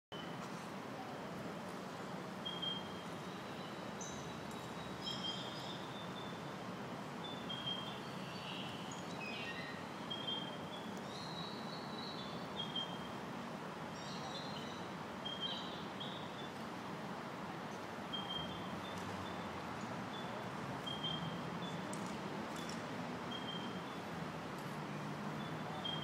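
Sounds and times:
birds chirping: 7.3 - 13.2, 13.9 - 16.8, 17.6 - 24.2, 25.0 - 26.0.

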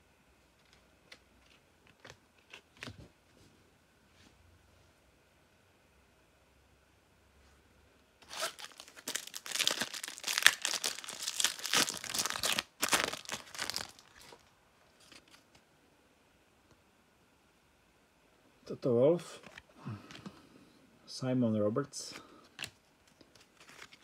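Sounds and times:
card wrapper crackling: 8.2 - 15.4, 23.3 - 24.0.

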